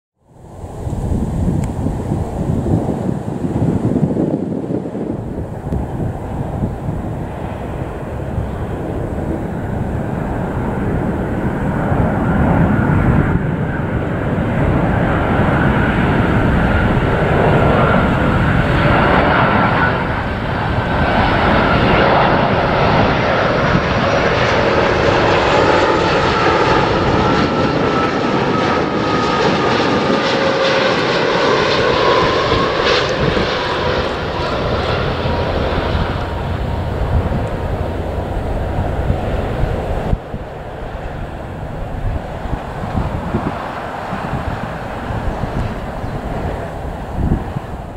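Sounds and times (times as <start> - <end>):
jet engines rumbling: 0.2 - 47.9
whining engine tones: 25.0 - 47.7.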